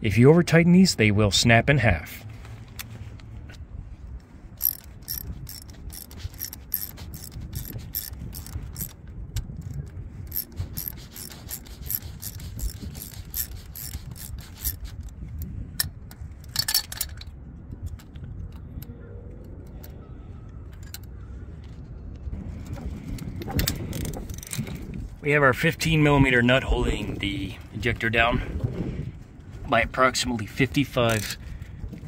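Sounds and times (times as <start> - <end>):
hand ratchet clicking: 4.6 - 17.2, 23.6 - 24.8.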